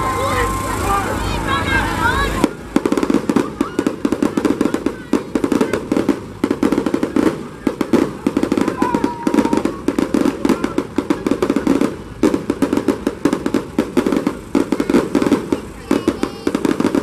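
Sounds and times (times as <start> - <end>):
fireworks crackling: 0.0 - 17.0.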